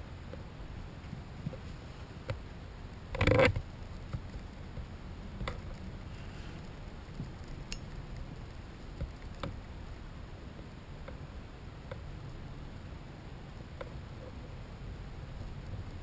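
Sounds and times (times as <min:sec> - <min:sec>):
low steady rumble: 0:00.0 - 0:16.0
faint ticks: 0:01.4 - 0:09.8.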